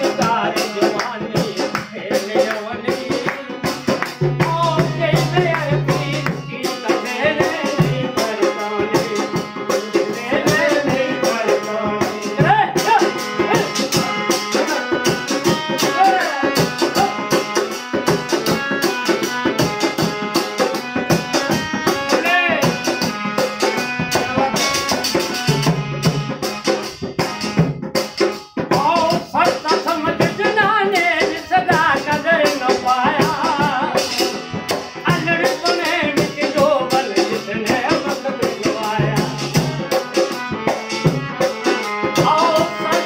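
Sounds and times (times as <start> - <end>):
man singing: 0.0 - 20.0, 21.3 - 25.2, 28.6 - 43.0
harmonium held notes: 0.0 - 43.0.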